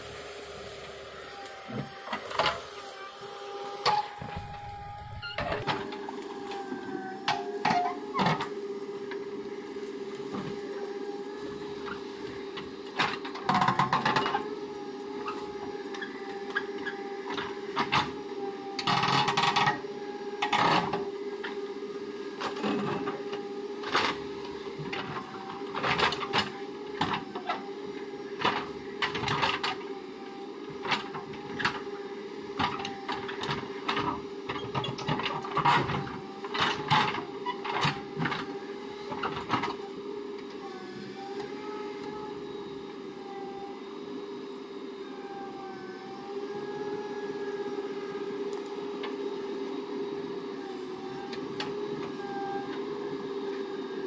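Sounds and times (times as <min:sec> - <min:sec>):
diesel engine humming: 0:00.0 - 0:13.7.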